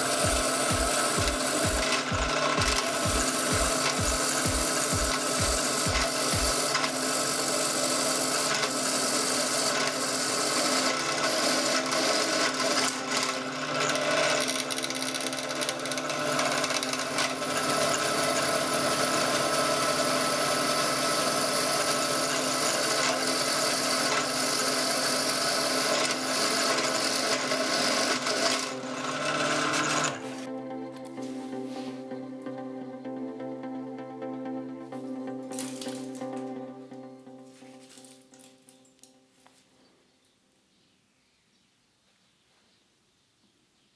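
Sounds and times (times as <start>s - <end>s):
drill bit scraping steel: 0.0s - 30.5s
drill press motor hum: 0.0s - 30.6s.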